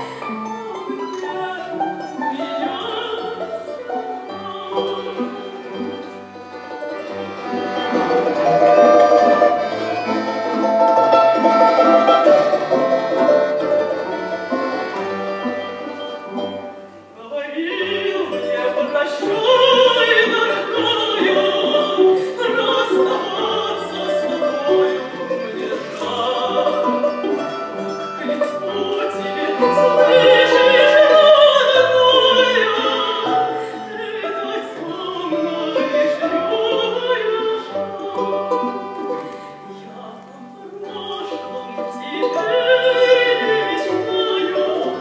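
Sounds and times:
soprano woman singing: 0.0 - 6.3, 7.7 - 14.3, 15.0 - 45.0
plucked strings: 0.0 - 45.0
button accordion: 1.7 - 17.1, 20.0 - 36.5.

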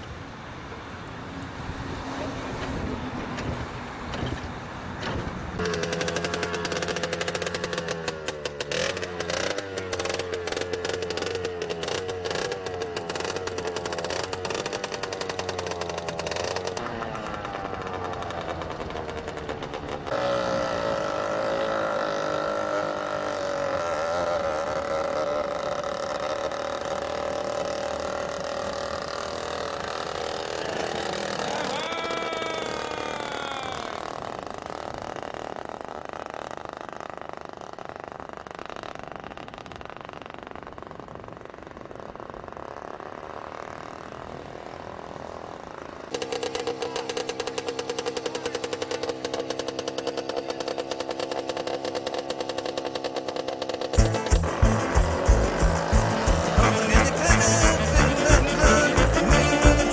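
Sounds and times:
small engine pulsing: 5.6 - 59.9
steady whining tone: 5.6 - 59.9
rising sweeping tones: 54.0 - 59.9.

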